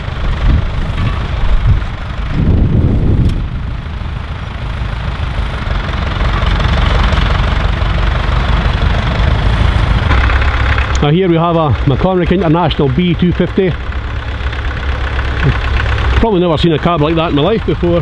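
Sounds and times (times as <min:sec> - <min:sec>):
wind buffeting microphone: 0:00.0 - 0:05.5
tractor diesel engine under load: 0:00.0 - 0:18.0.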